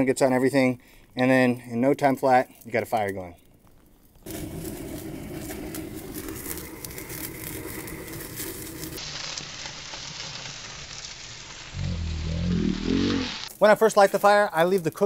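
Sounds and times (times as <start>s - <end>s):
fire crackling: 0.0s - 15.0s
gas torch roaring: 4.2s - 13.6s.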